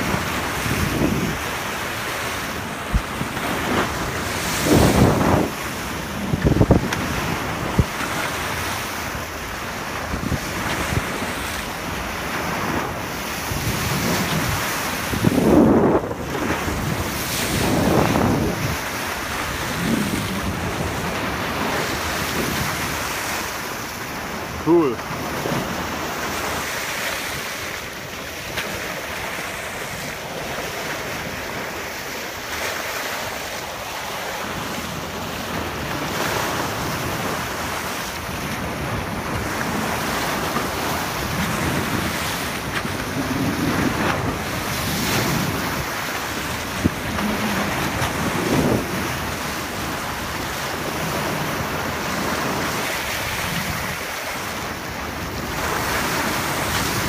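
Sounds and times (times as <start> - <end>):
sea water rushing along hull: 0.0 - 57.0
wind buffeting microphone: 0.0 - 57.0.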